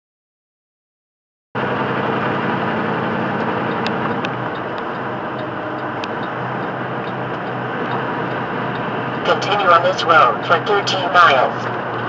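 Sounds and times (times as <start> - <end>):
truck road and engine noise: 1.6 - 12.0.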